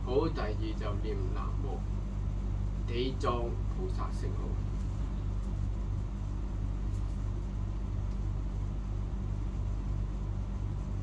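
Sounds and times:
pulsing mechanical hum: 0.0s - 11.0s.

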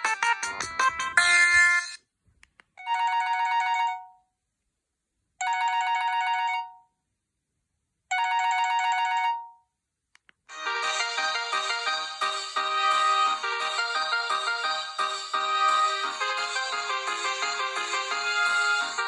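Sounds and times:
phone ringtone melodies: 0.0s - 2.0s, 2.8s - 4.2s, 5.4s - 6.9s, 8.1s - 9.6s, 10.5s - 19.0s.

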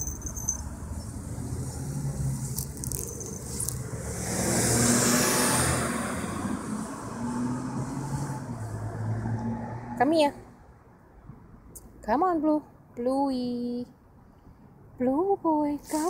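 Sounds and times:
car driving past: 3.8s - 10.0s.

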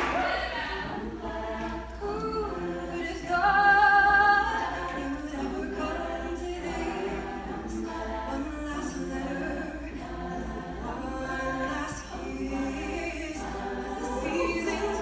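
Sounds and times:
women's choir singing a cappella: 0.0s - 15.0s.

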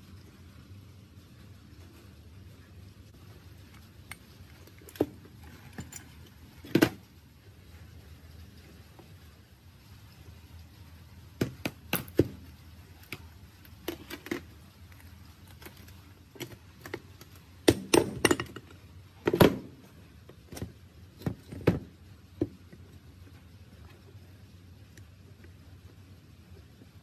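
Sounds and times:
metal clinks and knocks: 3.6s - 7.1s, 11.4s - 22.8s.

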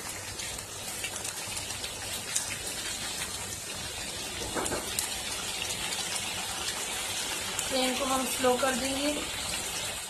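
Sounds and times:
curry sizzling in oil: 0.0s - 10.0s.

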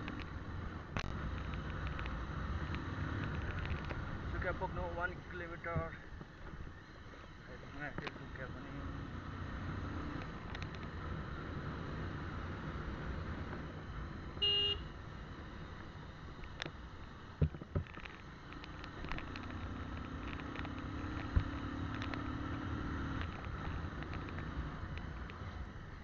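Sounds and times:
wind and road noise: 0.0s - 26.0s
short horn beep: 14.4s - 14.9s.

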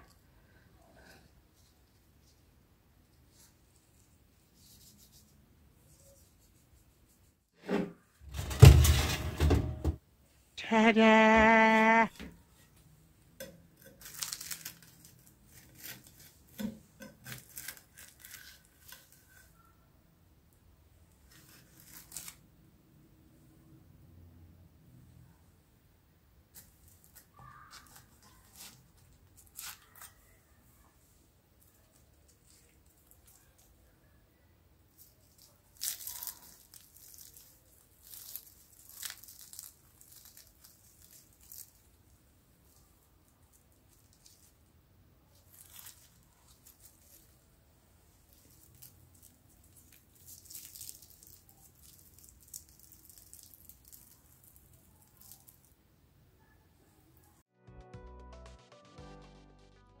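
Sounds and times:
crisp pastry crackling: 13.4s - 19.7s, 21.1s - 22.6s, 26.5s - 30.5s, 31.6s - 34.0s, 34.9s - 55.8s.

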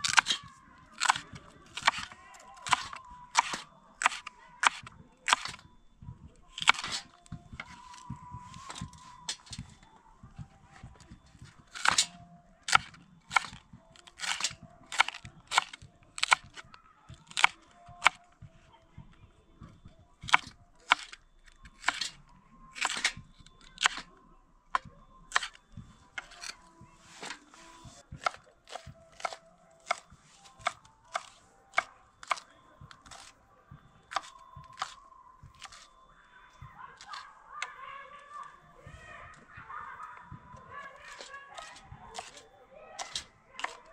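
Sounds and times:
knife chopping on wooden board: 0.0s - 5.7s, 6.5s - 9.7s, 11.0s - 16.6s, 17.2s - 18.2s, 20.2s - 22.2s, 22.8s - 24.1s, 24.8s - 25.6s, 26.2s - 33.3s, 34.1s - 35.9s, 41.0s - 42.4s, 43.0s - 43.9s.

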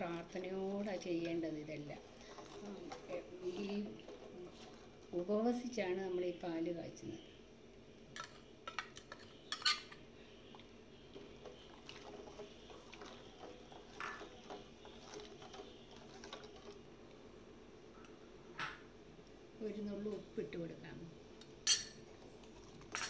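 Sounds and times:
spoon clinking and scraping: 11.5s - 15.5s, 21.6s - 22.0s.

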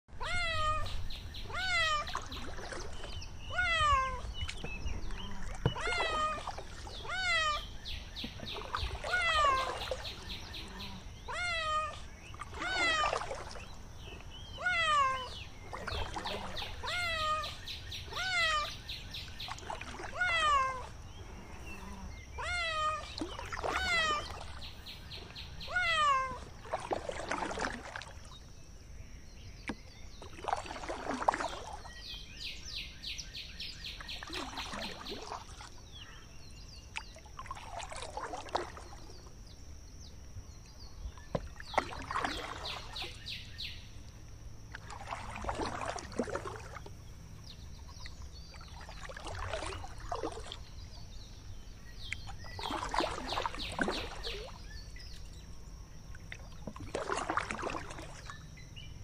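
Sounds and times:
water lapping softly: 0.0s - 59.0s
kittens meowing: 0.2s - 2.2s, 3.5s - 4.4s, 5.2s - 7.6s, 9.0s - 10.0s, 10.6s - 13.3s, 14.6s - 18.7s, 20.0s - 20.9s, 22.4s - 24.4s, 25.6s - 26.5s.

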